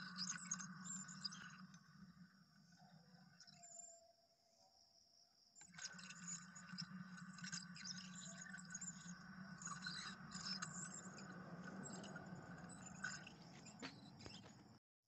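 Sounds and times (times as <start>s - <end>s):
irregular ticks and scraping clicks: 11.9s - 14.7s.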